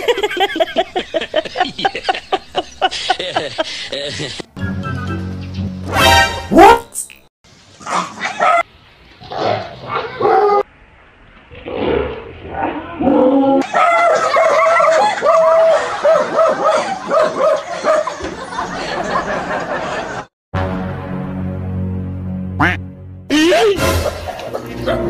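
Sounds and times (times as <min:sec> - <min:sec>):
dog barking and yipping: 0:06.5 - 0:06.9, 0:07.8 - 0:08.7, 0:13.6 - 0:18.2, 0:24.4 - 0:25.0.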